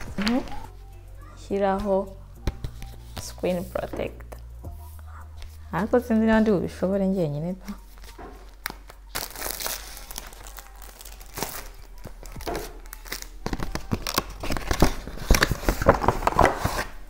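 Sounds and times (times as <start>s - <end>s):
packaging rustling and crinkling: 0.0s - 0.7s, 7.7s - 17.0s.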